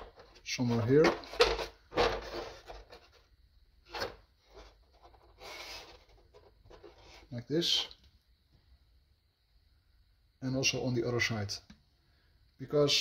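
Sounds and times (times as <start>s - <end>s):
wood scraping against wood: 0.0s - 3.3s, 3.9s - 7.4s.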